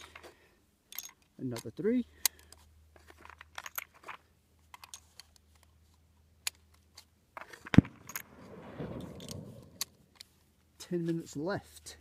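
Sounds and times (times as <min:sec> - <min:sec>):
rifle handling clicks: 0:00.9 - 0:05.8, 0:06.4 - 0:10.4
low steady hum: 0:02.0 - 0:11.0.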